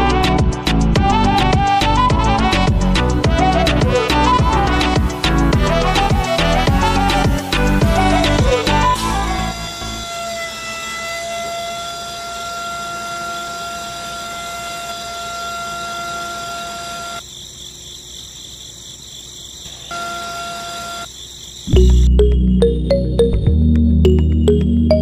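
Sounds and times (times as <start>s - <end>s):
toy winch motor whining: 8.3s - 17.2s, 19.7s - 21.2s.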